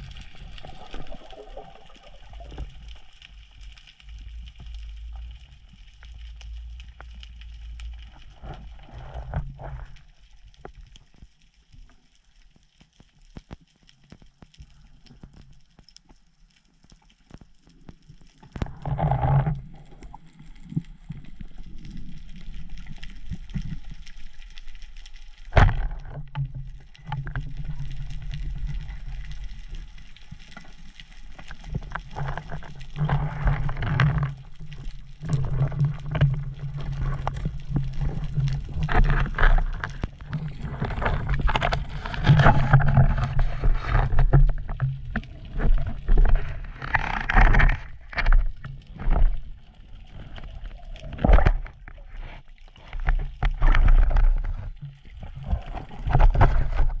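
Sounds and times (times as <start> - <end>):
rushing and gurgling water: 0.0 - 5.2, 25.4 - 57.0
low underwater hum: 0.0 - 57.0.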